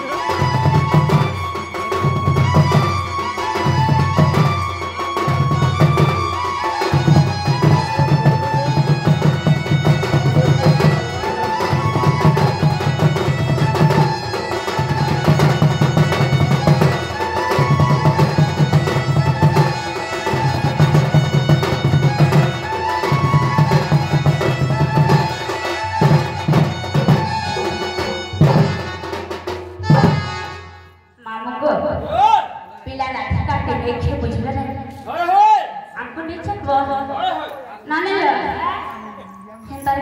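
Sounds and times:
wavering melody line: 0.0 - 29.2
barrel drum played by hand: 0.0 - 30.7.

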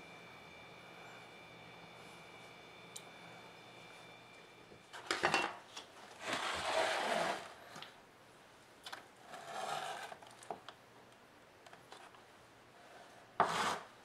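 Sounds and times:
plastic tub scraping: 6.2 - 7.6, 9.3 - 10.2.

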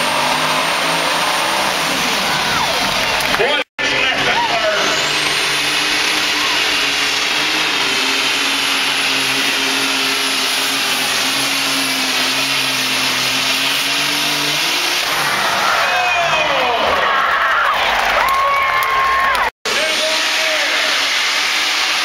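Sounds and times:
high turbo whine: 0.0 - 16.2, 19.7 - 22.0
tractor engine at full throttle: 0.0 - 16.8, 19.6 - 22.0.

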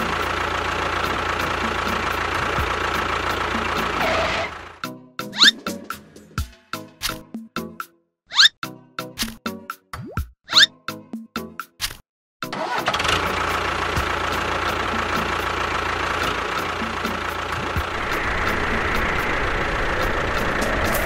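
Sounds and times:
tractor engine rumbling: 0.0 - 4.8, 12.6 - 21.0
bouncy plopping music: 9.0 - 11.8.

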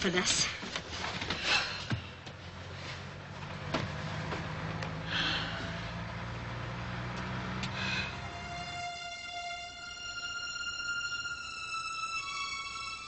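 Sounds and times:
vehicle engine running: 1.6 - 10.0.

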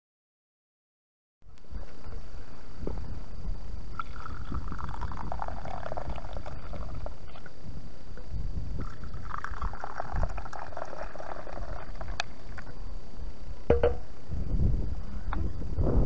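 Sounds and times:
wind rumble on microphone: 1.6 - 16.0
coffee pouring into cup: 4.0 - 7.5, 8.8 - 12.7.

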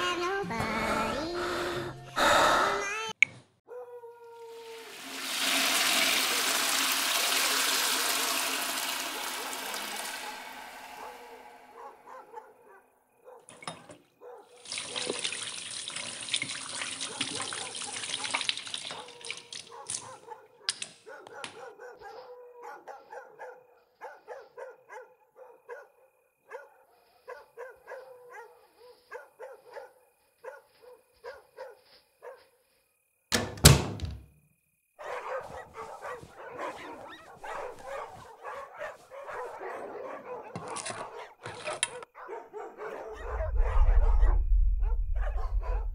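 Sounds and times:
loud bang: 8.0 - 12.7.

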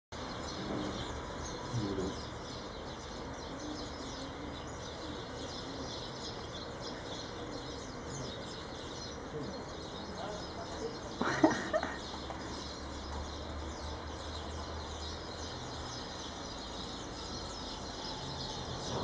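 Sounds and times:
low bird calls: 0.2 - 19.0
small birds chirping: 0.2 - 19.0.

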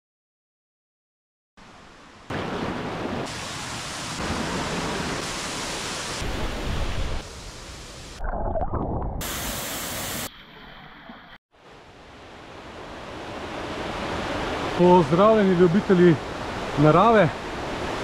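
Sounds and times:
waterfall rushing: 2.3 - 7.9, 12.7 - 18.0.

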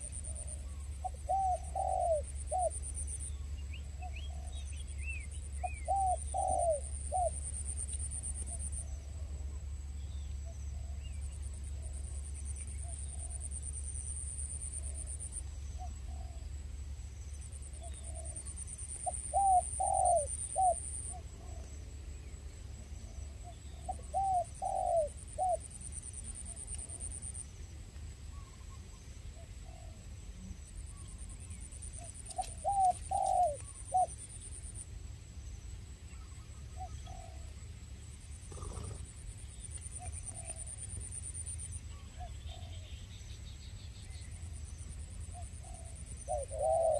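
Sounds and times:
dove cooing: 0.0 - 2.8, 5.6 - 7.4, 15.8 - 16.4, 17.8 - 21.7, 23.4 - 25.7, 29.6 - 30.0, 32.0 - 34.1, 36.7 - 37.5, 38.5 - 39.1, 40.0 - 40.8, 41.9 - 42.9, 45.3 - 46.9.

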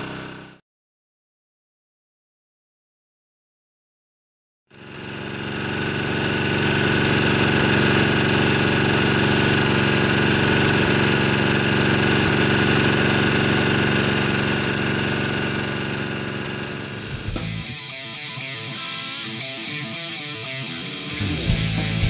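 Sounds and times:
small engine idling: 0.0 - 0.6, 4.7 - 17.8.

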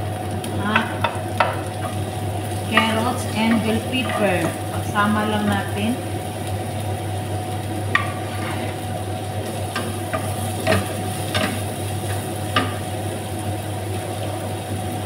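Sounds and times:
vegetables sizzling in frying pan: 0.0 - 15.0
spatula tapping and scraping pan: 0.7 - 2.0, 2.7 - 4.6, 7.9 - 8.3, 9.7 - 12.9.

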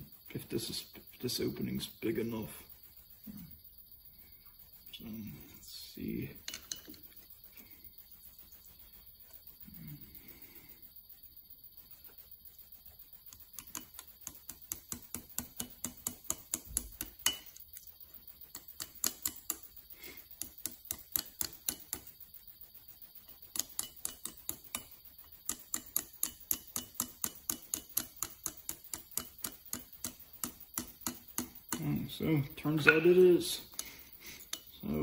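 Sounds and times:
small hammer tapping on metal: 13.6 - 17.6, 18.5 - 19.6, 20.4 - 22.1, 23.5 - 31.9.

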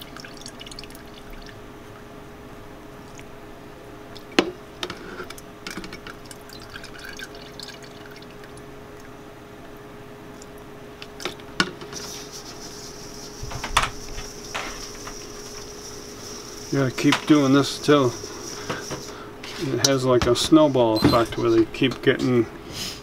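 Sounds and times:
bowl shaken with hiss: 11.8 - 19.8.

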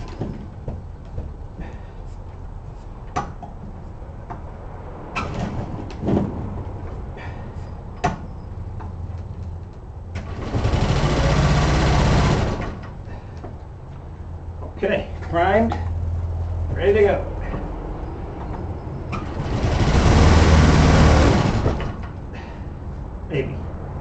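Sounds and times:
small engine running: 10.2 - 12.8, 19.2 - 22.0.

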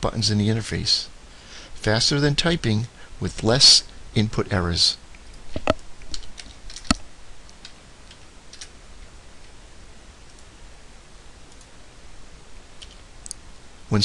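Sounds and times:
computer mouse clicks: 11.5 - 11.7.

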